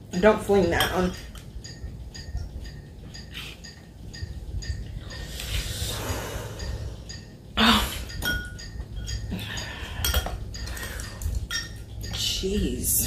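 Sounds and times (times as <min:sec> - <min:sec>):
forks clinking on glass bowls: 0:00.6 - 0:04.8, 0:08.1 - 0:12.4.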